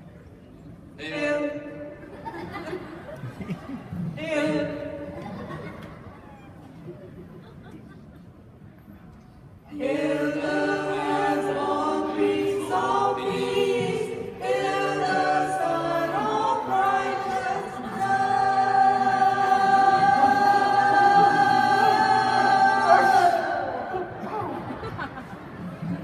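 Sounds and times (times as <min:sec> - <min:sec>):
choir singing: 0:09.7 - 0:25.2.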